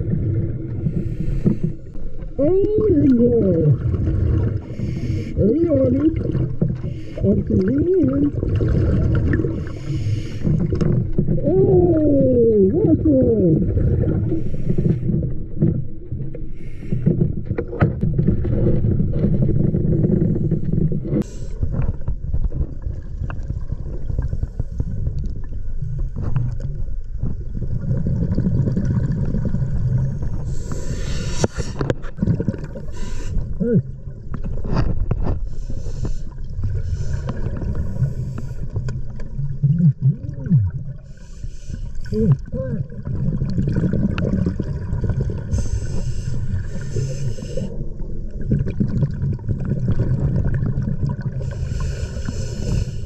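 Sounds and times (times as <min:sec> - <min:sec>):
low rumble of exhaled bubbles: 0:00.0 - 0:53.0
diver regulator breathing: 0:00.8 - 0:02.2, 0:04.6 - 0:05.4, 0:06.7 - 0:07.5, 0:09.4 - 0:11.0, 0:14.2 - 0:15.4, 0:16.4 - 0:17.4, 0:30.1 - 0:32.1, 0:32.8 - 0:33.6, 0:34.8 - 0:39.0, 0:41.0 - 0:42.5, 0:45.5 - 0:47.8, 0:51.4 - 0:53.0.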